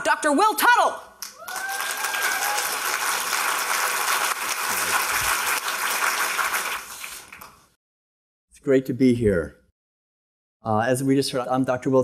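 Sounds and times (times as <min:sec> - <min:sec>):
audience applauding: 0:01.2 - 0:07.8
person cheering: 0:01.3 - 0:02.9.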